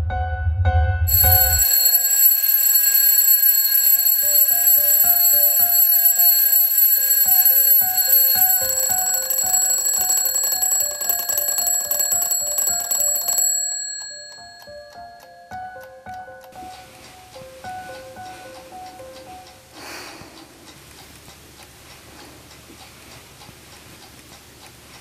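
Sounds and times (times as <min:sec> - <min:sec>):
simple melody: 0:01.1 - 0:02.4, 0:04.0 - 0:19.8
alarm clock bells ringing: 0:01.1 - 0:15.9.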